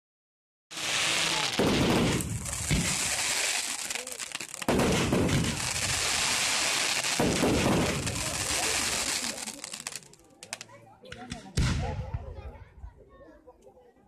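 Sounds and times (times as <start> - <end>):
heavy fireworks bangs: 0.7 - 10.0
fireworks crackling: 0.7 - 12.2.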